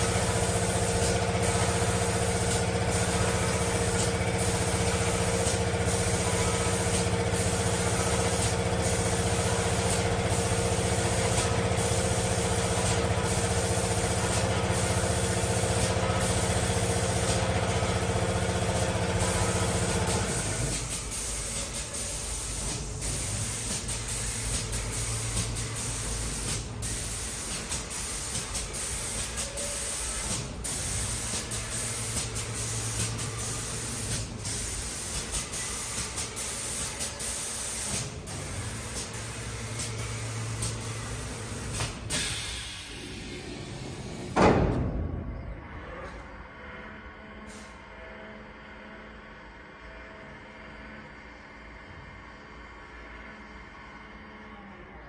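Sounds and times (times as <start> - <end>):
spray gun hissing: 0.0 - 43.8
machine mechanical hum: 0.0 - 55.0.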